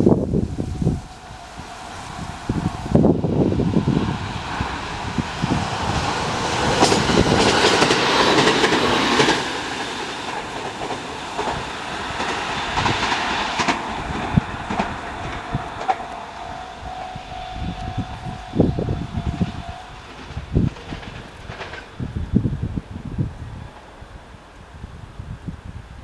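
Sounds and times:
steady high tone: 0:00.0 - 0:06.0, 0:13.9 - 0:20.6
train rumble: 0:00.0 - 0:26.0
wheels clattering over rail joints: 0:04.4 - 0:17.1, 0:18.6 - 0:22.7.

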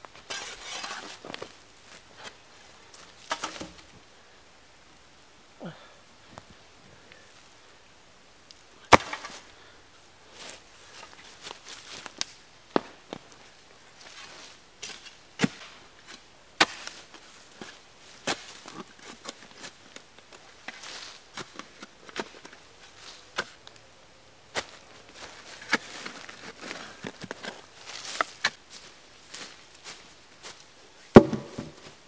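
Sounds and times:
dry leaves rustling underfoot: 0:10.2 - 0:23.8, 0:24.5 - 0:32.0
wooden planks knocking: 0:31.2 - 0:31.8.

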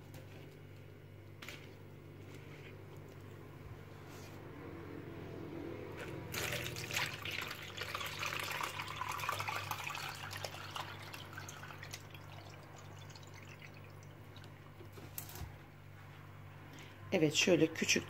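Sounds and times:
liquid pouring into a strainer: 0:06.0 - 0:14.7
liquid draining into a jug: 0:06.3 - 0:14.7.

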